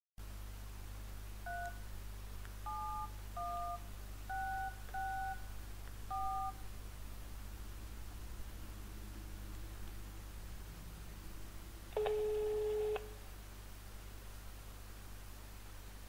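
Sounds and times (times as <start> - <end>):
low electrical hum: 0.2 - 16.0
touch-tone keypad beeps: 2.7 - 5.4, 6.1 - 6.6.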